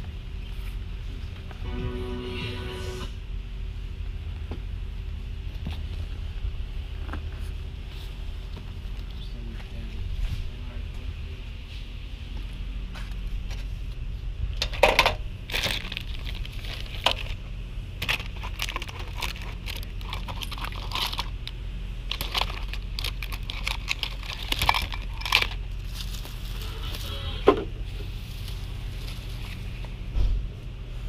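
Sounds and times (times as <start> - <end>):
steady low hum: 0.0 - 31.0
rustling of goods in basket and bags: 15.4 - 27.2, 27.8 - 31.0
objects clicking and knocking: 18.0 - 25.6.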